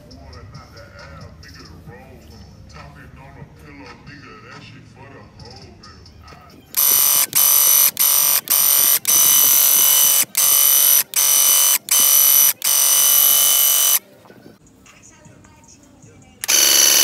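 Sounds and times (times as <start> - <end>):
paint sprayer pump buzzing: 6.8 - 14.0, 16.4 - 17.0.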